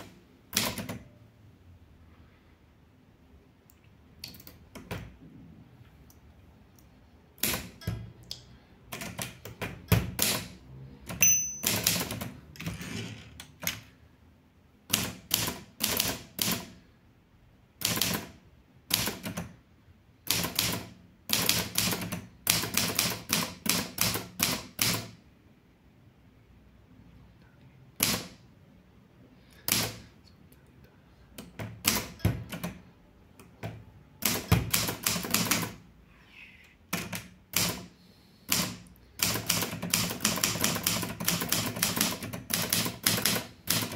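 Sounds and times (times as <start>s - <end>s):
typewriter keys clacking: 11.1s - 12.3s, 38.6s - 43.9s.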